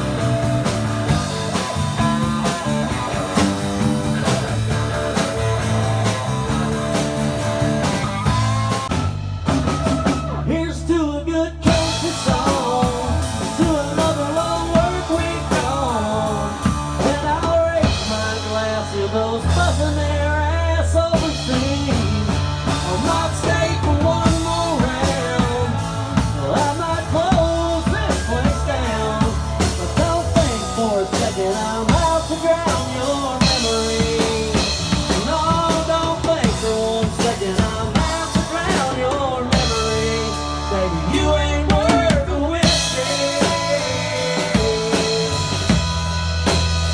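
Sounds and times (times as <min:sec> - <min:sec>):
drum kit steady beat: 0:00.0 - 0:10.8, 0:11.6 - 0:46.9
second guitar: 0:00.0 - 0:46.9
man singing into a microphone: 0:10.0 - 0:45.9.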